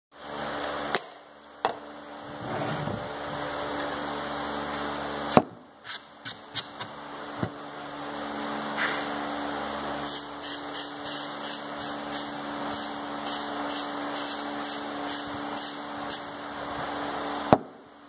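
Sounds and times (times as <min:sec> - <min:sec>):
steady low hum: 0:00.1 - 0:18.0.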